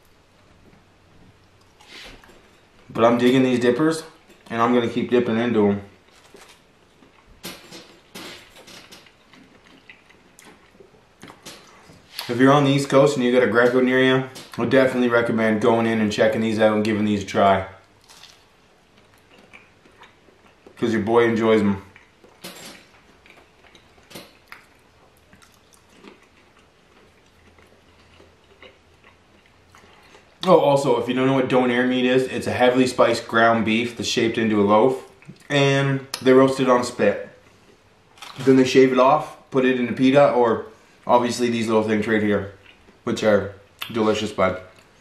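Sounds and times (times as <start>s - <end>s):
man chewing food: 0.0s - 2.9s, 6.0s - 12.3s, 17.9s - 20.8s, 21.8s - 30.4s, 42.6s - 43.0s
mouth clicks and smacks: 43.8s - 44.0s.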